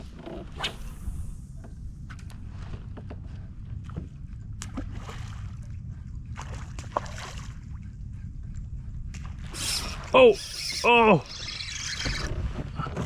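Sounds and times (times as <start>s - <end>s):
steady low rumble: 0.0s - 10.2s
water lapping against kayak hull: 1.3s - 13.0s.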